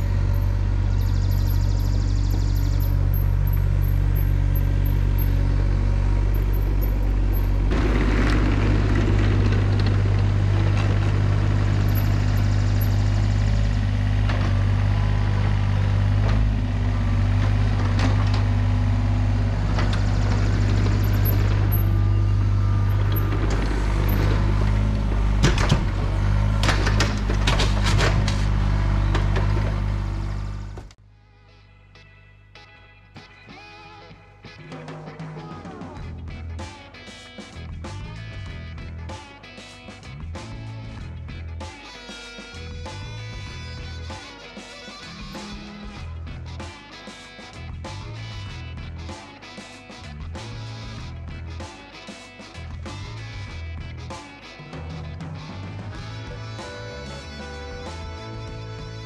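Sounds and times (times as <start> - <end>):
excavator diesel engine running: 0.0 - 31.0.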